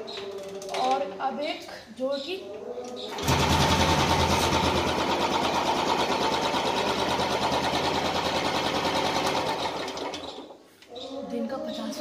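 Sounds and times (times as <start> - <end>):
motorcycle engine idling: 3.1 - 10.0.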